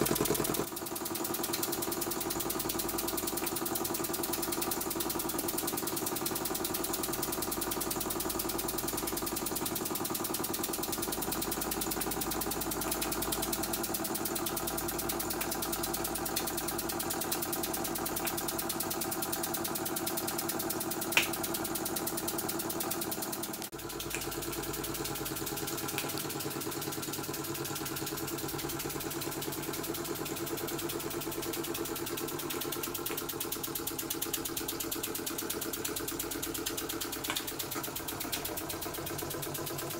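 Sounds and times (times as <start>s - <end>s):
toy steam engine running: 0.0s - 39.9s
sharp click: 21.1s - 21.5s, 30.3s - 39.3s.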